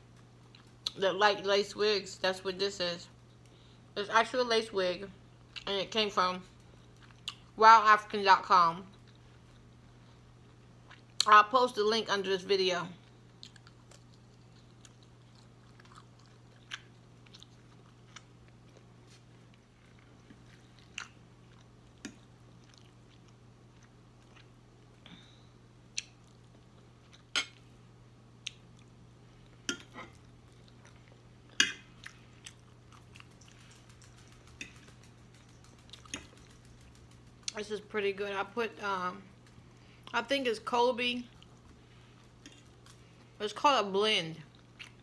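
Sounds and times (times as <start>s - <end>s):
person chewing food: 0.0s - 1.0s, 6.6s - 7.5s, 8.9s - 11.3s, 13.0s - 37.6s, 41.3s - 43.4s, 44.5s - 45.0s
faint low hum: 0.0s - 45.0s.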